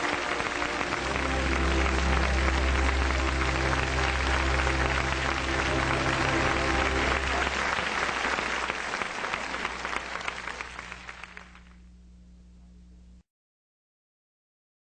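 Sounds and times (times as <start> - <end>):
audience applause: 0.0 - 11.8
low hum: 10.5 - 13.2.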